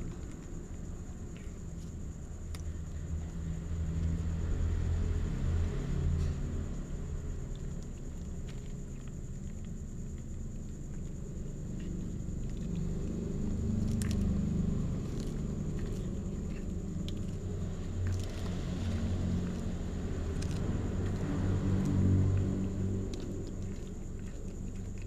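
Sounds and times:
cats chewing fish: 6.7s - 25.0s
bone crunching: 12.8s - 25.0s.

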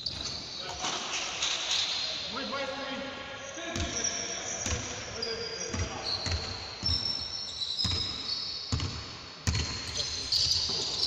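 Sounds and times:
sneakers squeaking on floor: 0.0s - 2.3s, 3.7s - 11.0s
basketball bouncing on hardwood: 8.7s - 9.9s.

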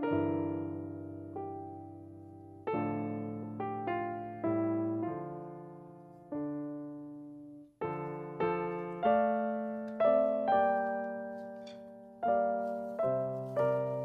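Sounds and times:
slow solo piano: 0.0s - 14.0s.

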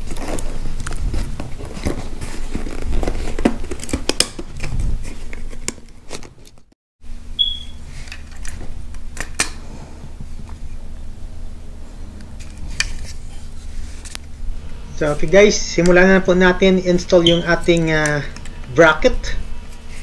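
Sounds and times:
low steady hum: 7.0s - 20.0s.

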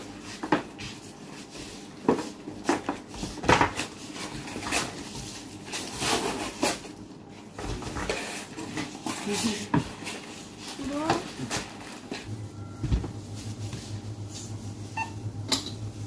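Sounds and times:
plastic packets rustling: 8.1s - 15.0s.

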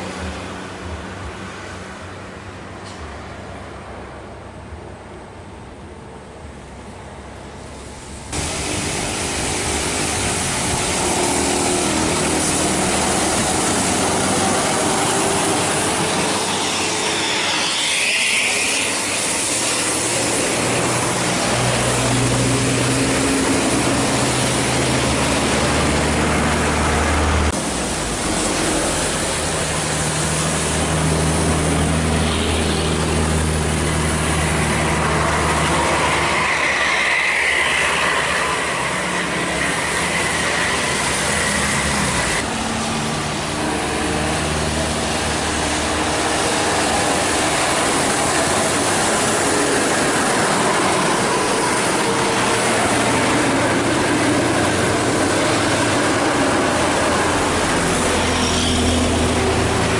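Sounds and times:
tyres hissing on wet road: 0.0s - 4.6s, 6.6s - 59.9s
bus diesel engines pulling hard: 0.0s - 59.9s
rain: 7.8s - 16.2s, 18.5s - 53.1s.

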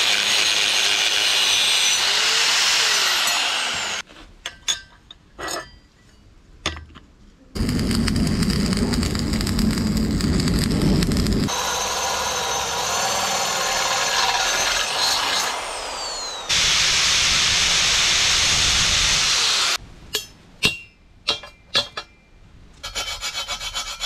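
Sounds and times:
power tool cutting metal: 0.0s - 4.0s, 10.2s - 19.8s
machine noise with deep rumble: 7.6s - 12.9s.

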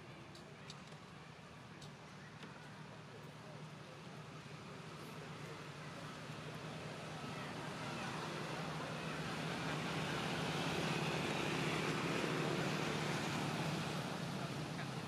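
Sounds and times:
vehicle engine rumble: 0.0s - 15.0s.

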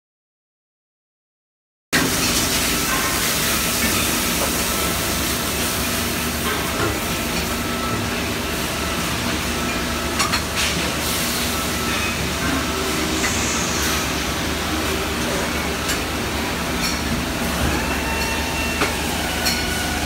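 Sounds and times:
brazing machine hiss: 12.5s - 15.6s.

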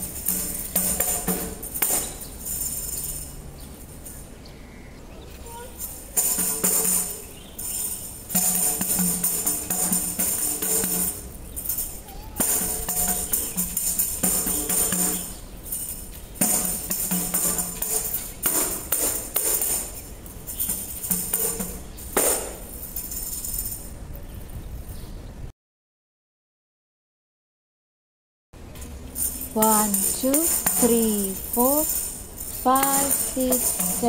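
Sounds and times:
tambourine jingles rattling: 0.0s - 4.4s, 5.5s - 24.0s, 28.8s - 34.0s
backing music: 29.6s - 34.0s.

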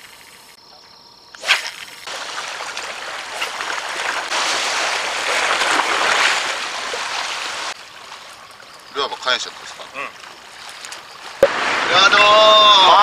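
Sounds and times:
fishing rod cast swish: 1.4s - 2.0s
sea waves against rocks: 2.1s - 13.0s.

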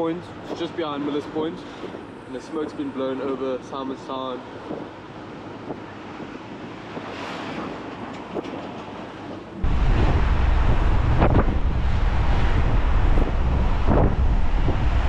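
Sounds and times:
wind buffeting microphone: 4.4s - 15.0s.

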